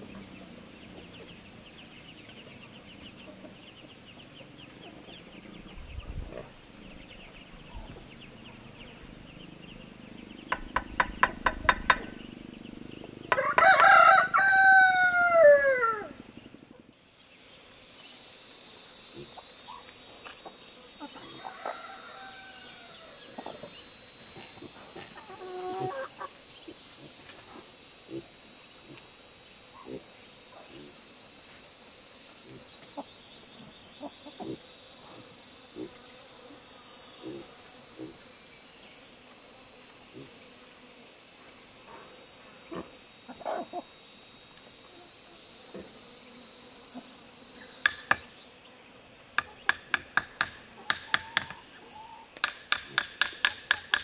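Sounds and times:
high insect drone: 0.0 - 54.0
trowel tapping concrete blocks: 10.6 - 12.1, 49.4 - 51.6, 52.4 - 54.0
rooster crowing: 13.3 - 16.2, 21.1 - 23.6.

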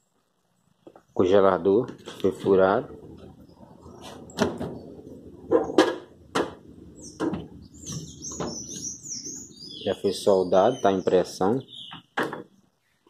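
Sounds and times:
birds chirping: 0.0 - 13.0
plastic knocks and clacks: 5.5 - 6.6, 7.2 - 8.6, 11.9 - 12.5.

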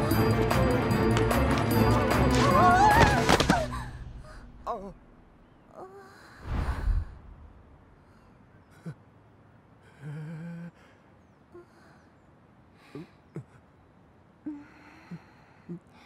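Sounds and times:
low flat hum: 3.6 - 16.0.

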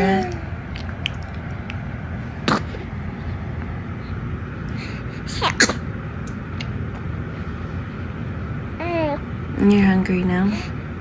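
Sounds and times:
low background hum: 0.0 - 11.0
baby sneezing: 2.4 - 2.9, 5.3 - 5.9.

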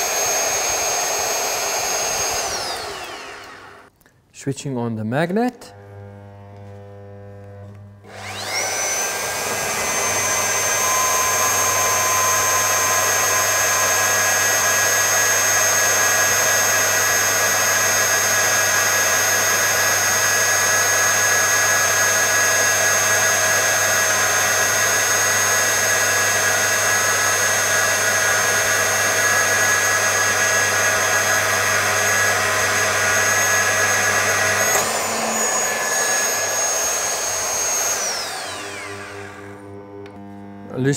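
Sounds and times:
core drill boring into steel: 0.0 - 3.9, 8.0 - 39.8
electromagnet low hum: 5.5 - 20.3, 26.8 - 40.9.

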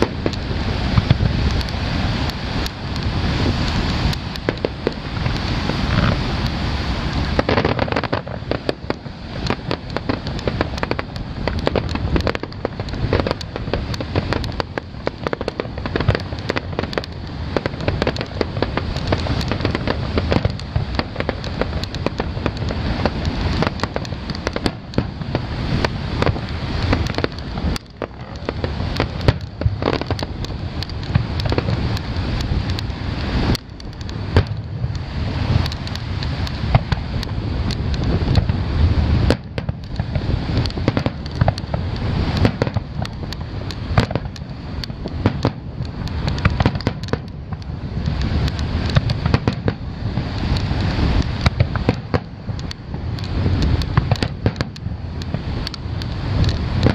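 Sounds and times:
fireworks popping and cracking: 0.0 - 56.9
low rumble: 0.0 - 56.9.

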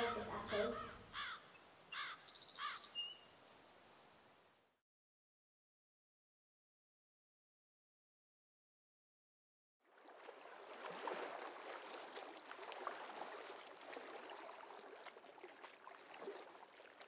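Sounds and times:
water lapping around rowing boat: 0.0 - 1.4, 9.8 - 17.0.

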